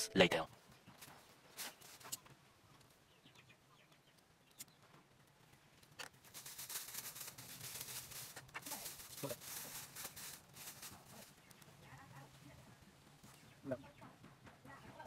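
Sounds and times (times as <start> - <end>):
plastic bags crinkling: 6.1 - 11.4.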